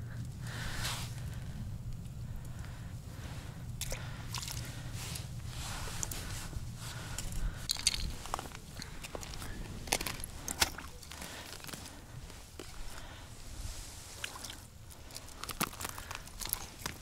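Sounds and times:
low rumble: 0.0s - 11.1s
ice crunching and scraping: 4.3s - 17.0s.

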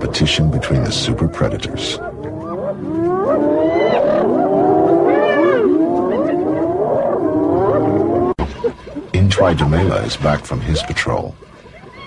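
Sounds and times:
hyenas whooping and squealing: 0.7s - 8.7s, 11.7s - 12.0s.

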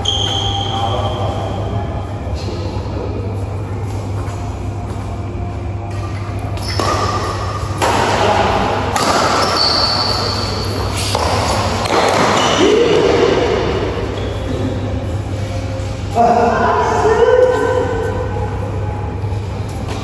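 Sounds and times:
shoe soles squeaking on court: 0.0s - 1.4s, 6.6s - 7.2s, 9.3s - 11.3s
racket hitting shuttlecock: 5.9s - 13.1s.

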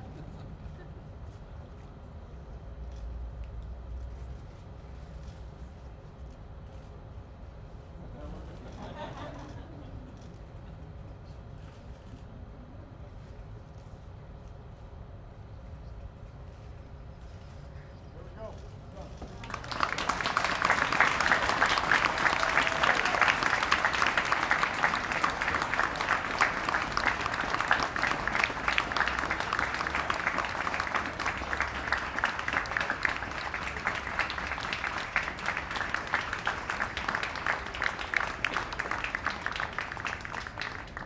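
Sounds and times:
crowd applauding: 19.3s - 41.0s.

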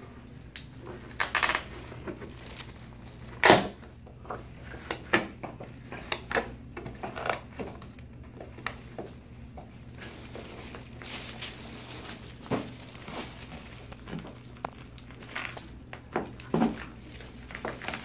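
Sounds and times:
cast cracking and snapping: 13.2s - 16.5s.

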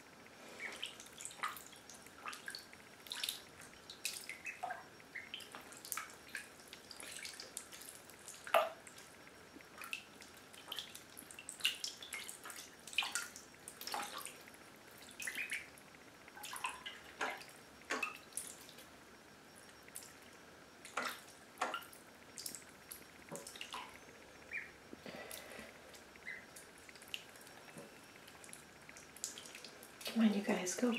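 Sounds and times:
ducklings splashing in water: 0.6s - 9.0s, 9.8s - 15.7s.

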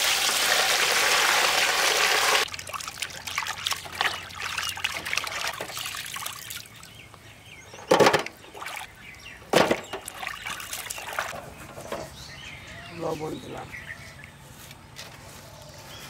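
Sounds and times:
water splashing and dripping: 0.0s - 7.2s, 8.2s - 9.0s, 9.6s - 11.4s.

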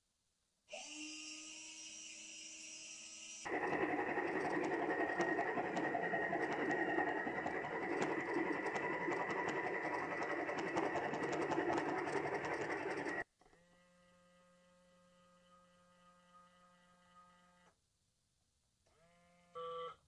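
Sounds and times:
electric motor whining: 0.7s - 13.2s.

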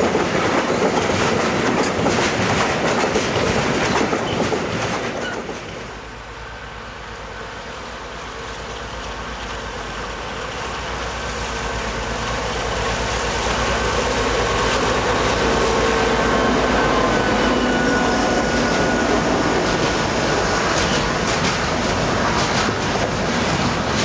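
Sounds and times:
wheels clicking over rail joints: 0.0s - 5.9s, 18.6s - 24.0s
diesel locomotive passing: 0.0s - 24.0s
train wheel noise: 0.0s - 24.0s.

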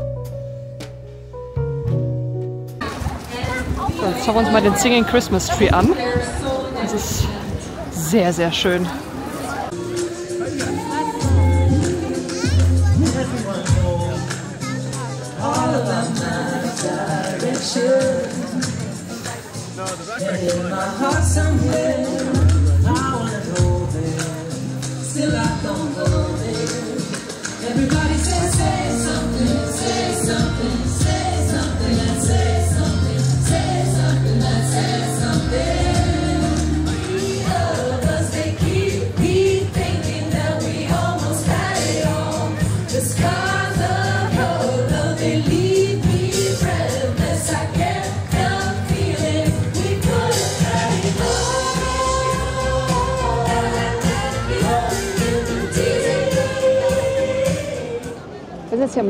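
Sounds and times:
amplified backing track with beat: 0.0s - 2.8s
instrumental backing with bass: 0.0s - 2.8s, 9.7s - 58.3s
choir singing: 15.4s - 18.7s, 25.1s - 58.3s.

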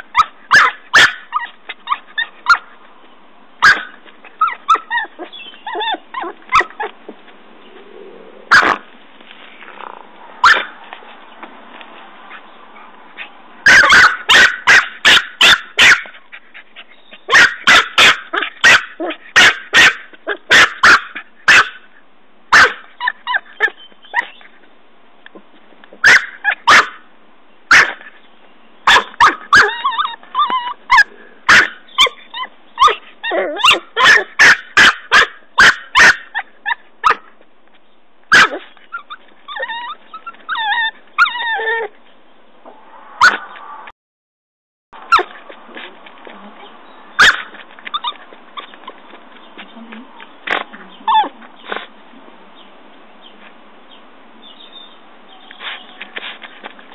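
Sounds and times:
puppy yipping and growling: 0.0s - 2.7s, 3.6s - 7.0s, 7.7s - 8.8s, 9.7s - 10.8s, 13.6s - 16.3s, 17.1s - 21.7s, 22.5s - 24.4s, 26.0s - 27.0s, 28.9s - 37.3s, 38.3s - 42.0s, 43.2s - 43.7s, 45.1s - 45.9s, 47.2s - 49.1s, 50.5s - 51.9s
dog digging in soil: 55.4s - 56.9s.

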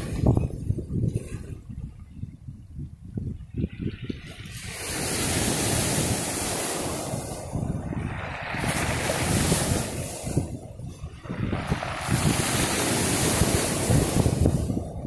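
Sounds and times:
wind buffeting microphone: 0.0s - 15.0s
waves washing up a pebble beach: 4.2s - 15.0s.

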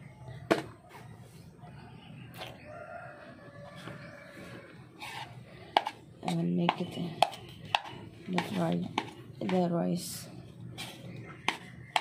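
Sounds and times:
rooster crowing: 2.6s - 4.9s.

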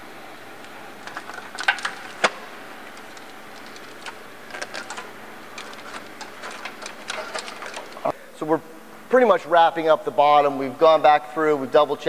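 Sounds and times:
wiring clicks and rattles: 0.6s - 8.1s.

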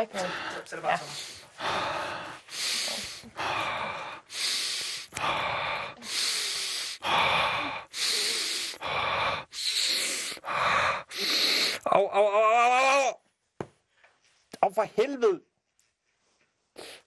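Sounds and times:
man breathing heavily: 0.0s - 11.8s.

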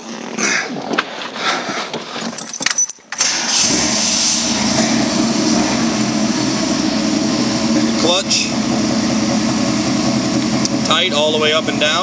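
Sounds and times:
engine starting and idling: 3.1s - 12.0s.

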